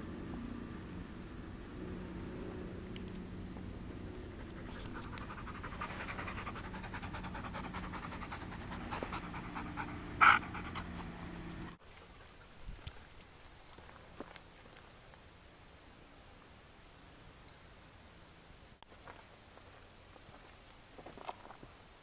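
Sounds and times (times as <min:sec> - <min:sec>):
dog panting rapidly: 0:04.3 - 0:11.5.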